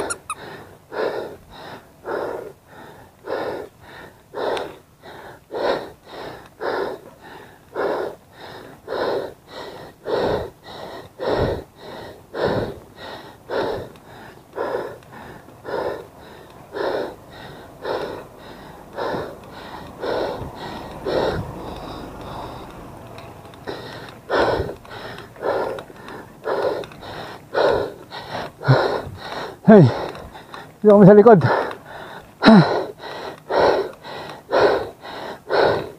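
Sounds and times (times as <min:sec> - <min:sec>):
person breathing hard: 0:00.0 - 0:35.9.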